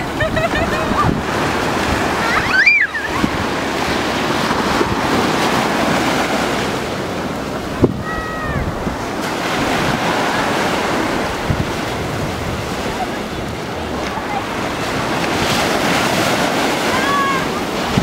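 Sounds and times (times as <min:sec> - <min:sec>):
wind buffeting microphone: 0:00.0 - 0:18.0
high-pitched cry: 0:02.2 - 0:03.2.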